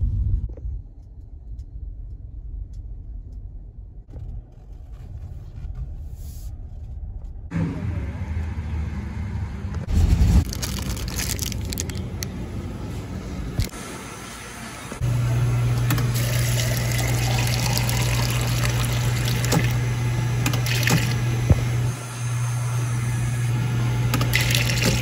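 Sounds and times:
dispenser low hum: 0.0 - 25.0
liquid pouring over ice: 16.2 - 19.8, 24.3 - 25.0.

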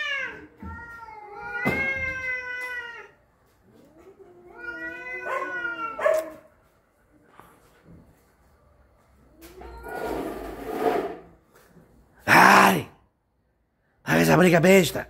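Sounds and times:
cats caterwauling: 0.0 - 6.4.

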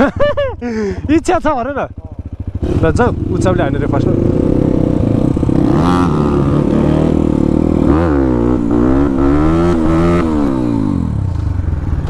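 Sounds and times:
dirt bike engine revving: 1.9 - 11.5.

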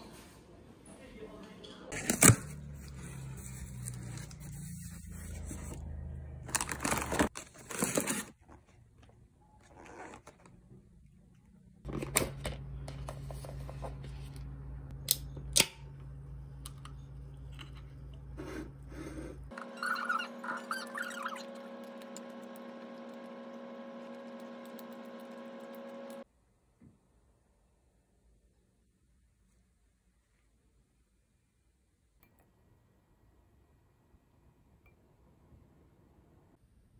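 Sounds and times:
packaging rustling and scraping: 1.9 - 8.9
low steady hum: 10.9 - 19.5.

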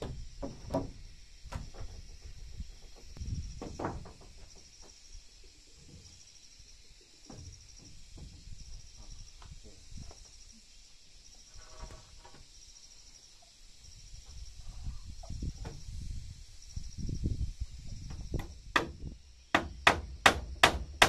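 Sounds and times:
wooden planks knocking: 0.0 - 2.0, 3.0 - 4.7
insect chirping in trills: 0.0 - 21.0.

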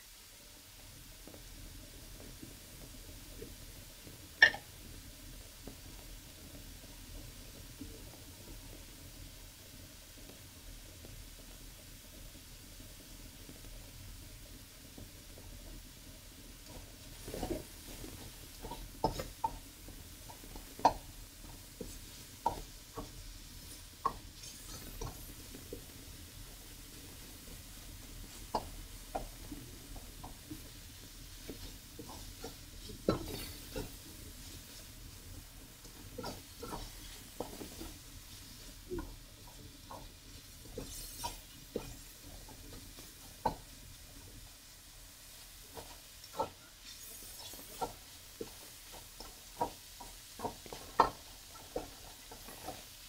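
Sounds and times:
faint frying sizzle: 0.0 - 53.0
turner scraping against wok: 17.2 - 43.7, 45.3 - 53.0.

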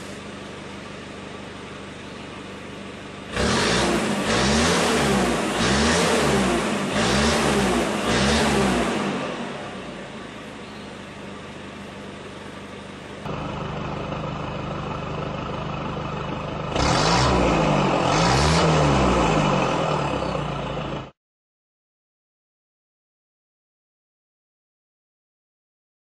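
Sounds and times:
diesel engine idling and revving: 0.0 - 21.2.

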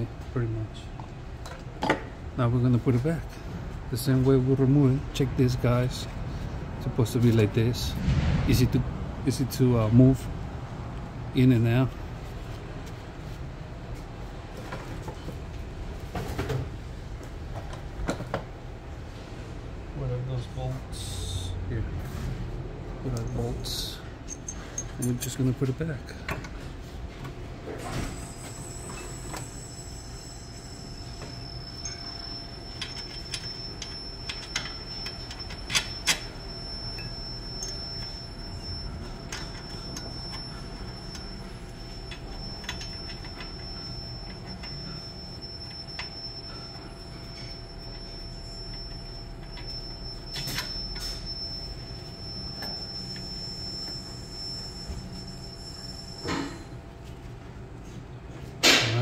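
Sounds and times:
high-pitched whine: 4.0 - 12.0, 27.8 - 56.8.

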